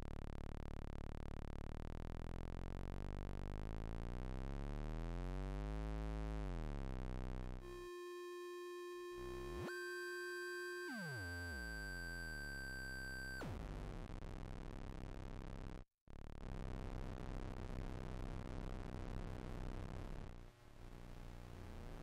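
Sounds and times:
synthesizer droning buzzy tones: 2.9 - 15.8.

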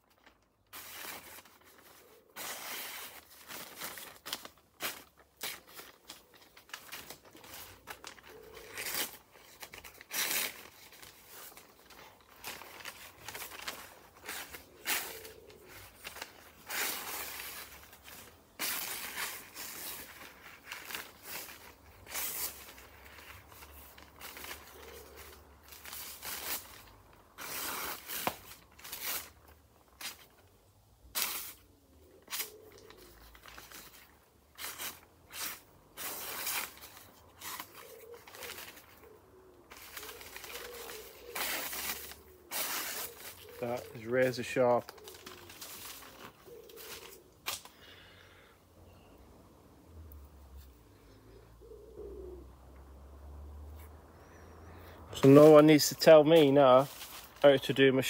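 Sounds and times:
chisel slicing newspaper: 0.7 - 30.4, 31.1 - 39.1, 39.7 - 47.7.

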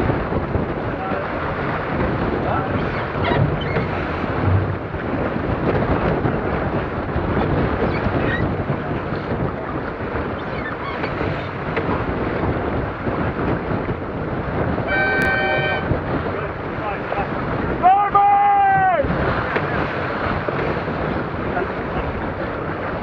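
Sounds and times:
water rushing past hull: 0.0 - 23.0
wind buffeting microphone: 0.0 - 23.0
horn-like tone: 14.9 - 15.9.

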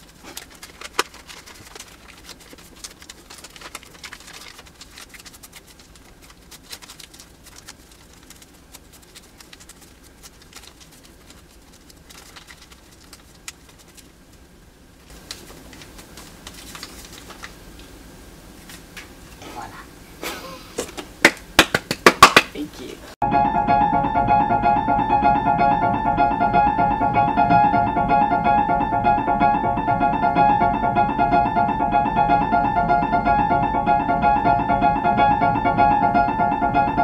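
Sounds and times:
paper crinkling and clicking: 0.0 - 18.0, 18.6 - 19.4.

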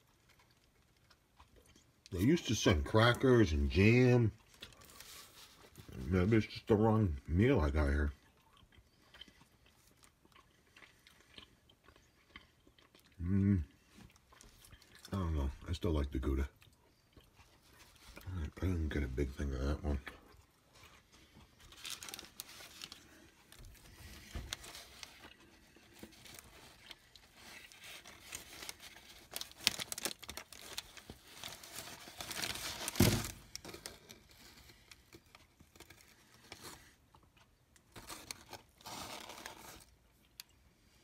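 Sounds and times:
paper crinkling: 20.7 - 36.9, 37.9 - 40.0.

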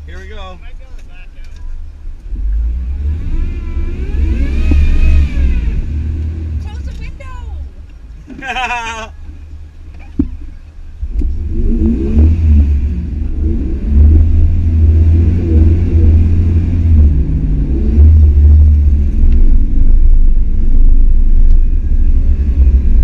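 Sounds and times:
off-road vehicle engine revving: 0.0 - 7.6, 10.0 - 23.0.

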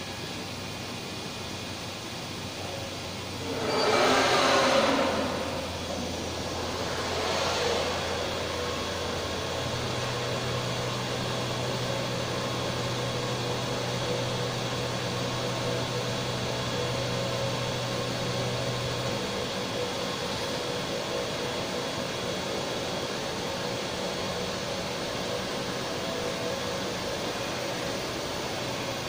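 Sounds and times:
faint steady whines: 0.0 - 29.0
machine and fans humming: 0.0 - 29.0
low drone of drive: 3.1 - 19.8.

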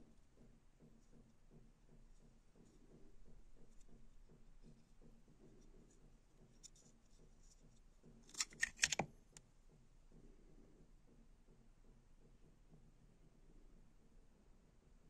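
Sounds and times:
faint handling clicks: 8.2 - 9.4.

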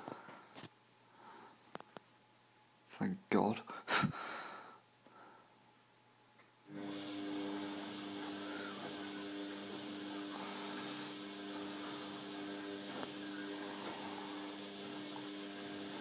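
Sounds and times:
washing machine motor whine: 6.7 - 16.0.

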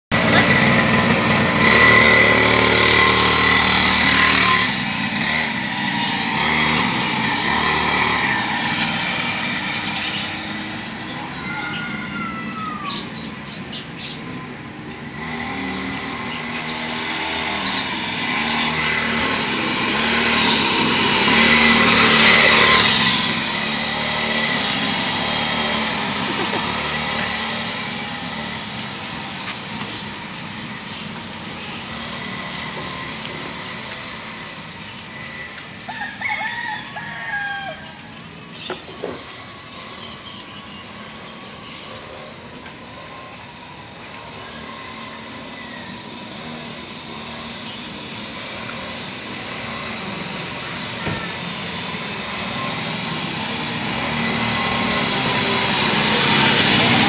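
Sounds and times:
small two-stroke engine buzzing: 0.1 - 57.0
rooster crowing: 11.3 - 13.1, 35.8 - 38.1.

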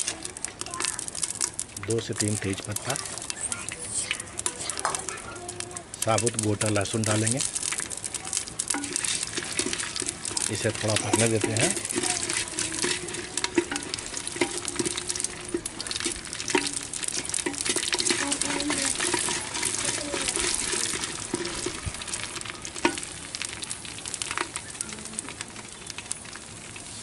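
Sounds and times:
spices sizzling in hot oil: 0.0 - 27.0
wooden stick scraping clay pot: 8.5 - 23.1.

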